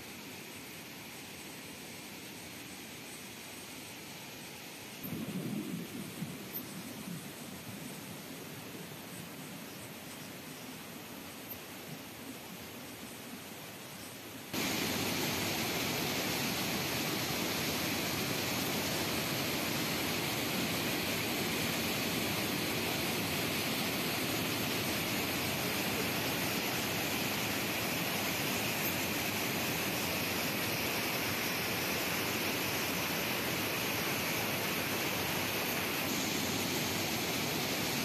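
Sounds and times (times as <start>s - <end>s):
floodwater rushing: 14.5s - 38.0s.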